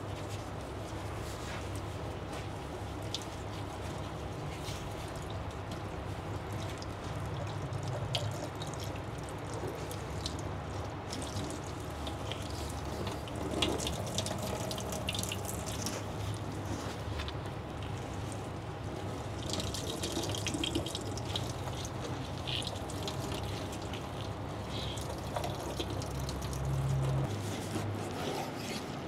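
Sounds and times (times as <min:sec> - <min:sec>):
liquid dripping into metal sink: 0:06.4 - 0:16.0.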